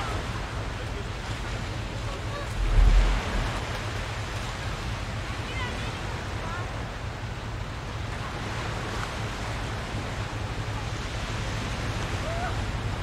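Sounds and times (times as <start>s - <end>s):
surf washing: 0.0s - 13.0s
wind noise: 2.5s - 4.2s.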